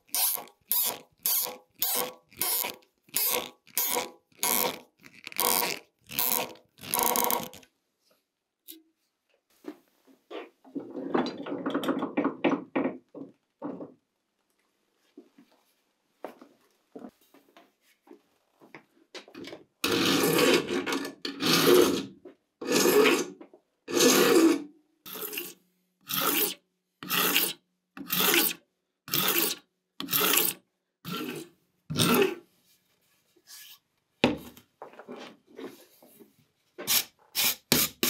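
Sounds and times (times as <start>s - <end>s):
hand file rasping on metal: 19.9s - 20.7s, 21.3s - 23.3s, 23.9s - 32.4s.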